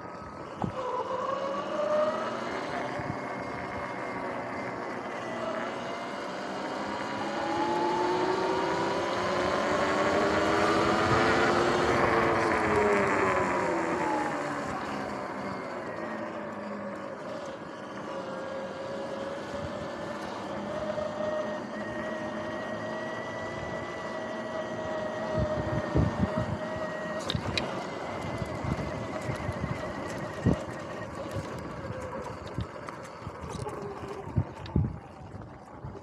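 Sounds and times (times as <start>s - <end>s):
electric motor whine: 0.0s - 36.0s
tyre and wind noise: 7.5s - 36.0s.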